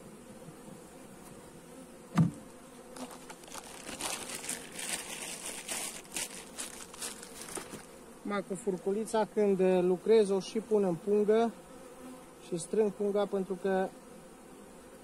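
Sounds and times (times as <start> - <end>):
honeybees buzzing: 0.0 - 15.0
sharp knock: 2.1 - 2.4
plastic bag crinkling: 3.0 - 7.9.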